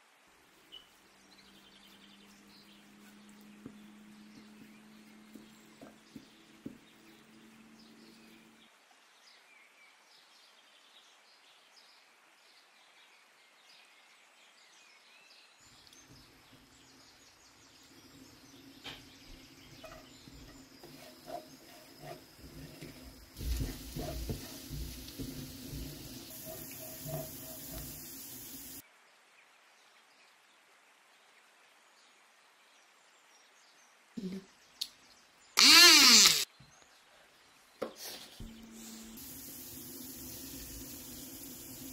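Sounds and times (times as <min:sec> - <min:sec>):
garlic sizzling in hot oil: 0:17.9 - 0:28.8, 0:39.1 - 0:41.9
spatula stirring in pan: 0:18.0 - 0:28.8.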